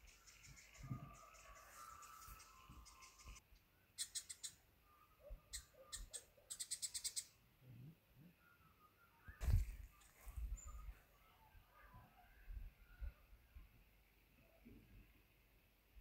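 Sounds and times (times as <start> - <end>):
birds calling: 0.0 - 3.4, 4.0 - 7.4
rapid high-pitched clicking calls: 0.0 - 3.4, 4.0 - 4.6, 5.5 - 7.3.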